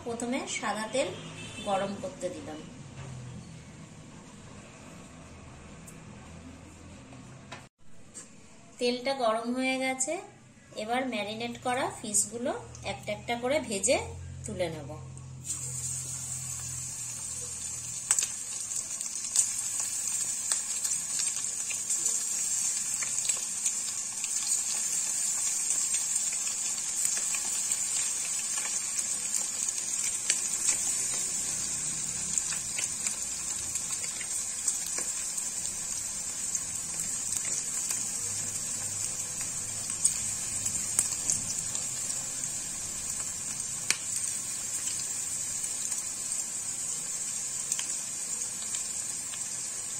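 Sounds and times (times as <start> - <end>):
fish deep-frying in hot oil: 15.4 - 49.9
oil crackling and popping: 15.4 - 49.9.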